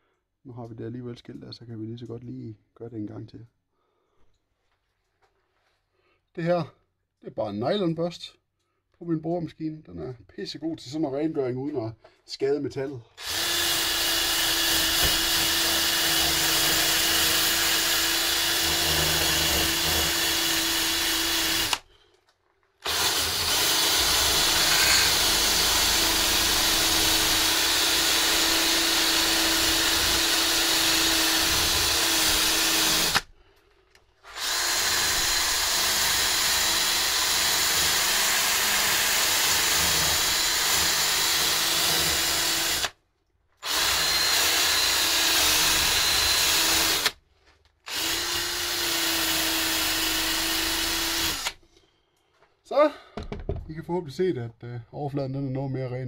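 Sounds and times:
drill spinning abrasive brush on steel: 13.2s - 21.9s, 22.8s - 33.3s, 34.2s - 43.0s, 43.6s - 47.2s, 47.9s - 51.6s.

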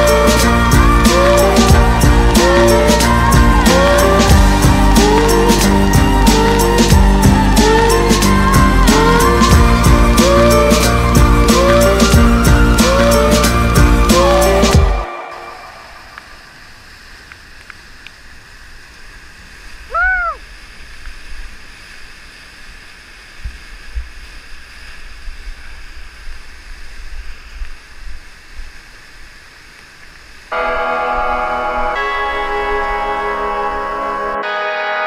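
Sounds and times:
rising and falling call: 0.0s - 17.0s, 19.9s - 20.5s.

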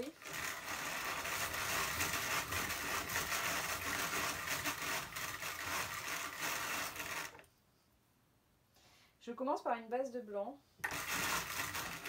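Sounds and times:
hand-cranked drum carder whirring: 0.0s - 7.4s, 10.8s - 12.0s.

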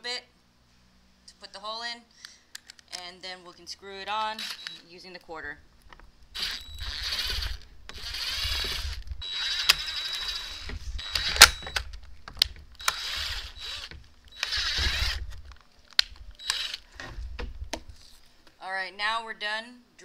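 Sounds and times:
drill motor whine: 4.4s - 4.8s, 6.4s - 11.9s, 12.8s - 15.4s, 16.4s - 16.9s
sharp clicks and knocks: 5.8s - 17.9s.

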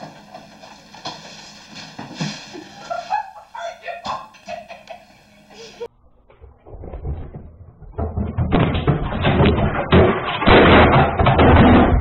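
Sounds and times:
tv crashing and clattering: 7.0s - 12.0s.

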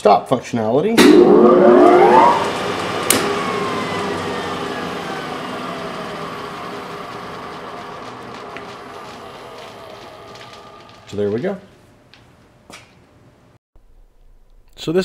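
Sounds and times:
contactor click: 1.0s - 11.2s
lathe motor whining: 1.0s - 11.6s.

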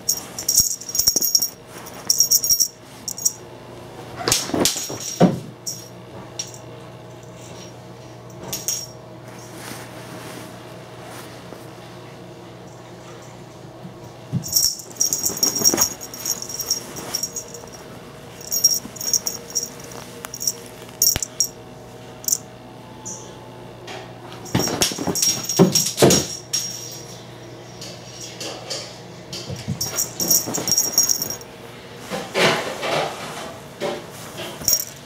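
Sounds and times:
toy jingling rattles: 0.0s - 3.4s, 14.4s - 17.8s, 18.4s - 21.5s, 29.8s - 31.4s, 34.6s - 35.0s.

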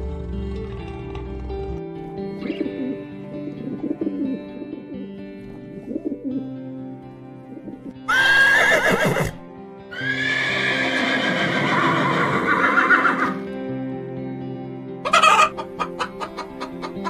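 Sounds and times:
background music: 0.0s - 17.0s
horse whinnying: 8.1s - 13.4s.

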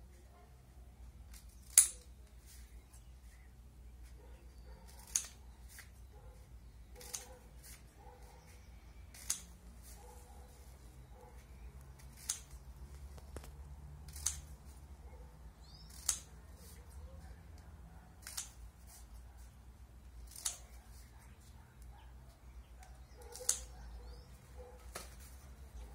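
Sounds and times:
scissors snipping newspaper: 4.9s - 6.0s, 6.9s - 7.9s, 9.1s - 10.0s, 11.8s - 14.8s, 15.6s - 17.0s, 17.6s - 19.1s, 20.2s - 21.1s, 23.1s - 23.8s.

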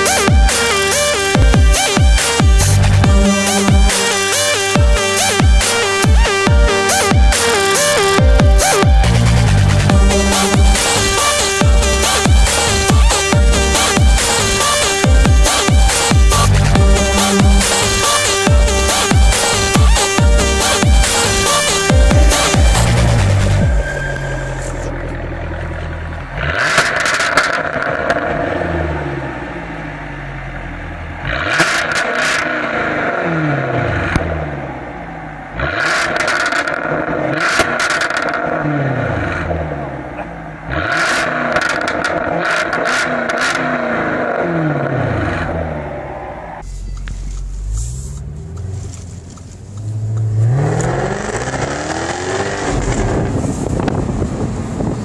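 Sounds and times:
car engine revving: 0.0s - 55.0s
exhaust cracks: 0.0s - 55.0s.

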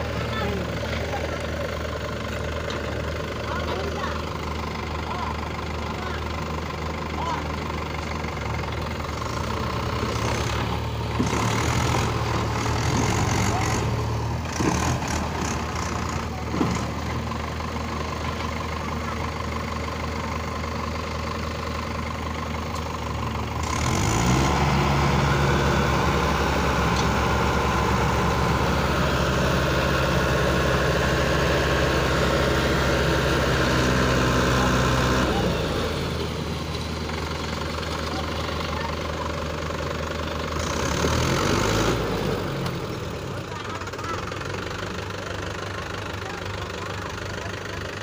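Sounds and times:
engine knocks: 0.0s - 24.4s
tractor diesel engine: 0.0s - 48.0s.

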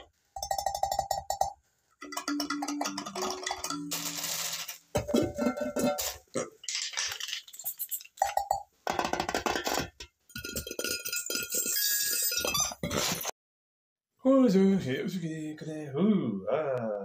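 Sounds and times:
clinks and clatters of struck objects: 0.0s - 13.0s.

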